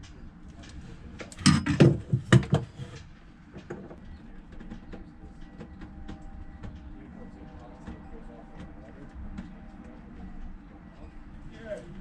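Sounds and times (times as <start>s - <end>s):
sharp clicks and knocks: 0.0s - 6.9s.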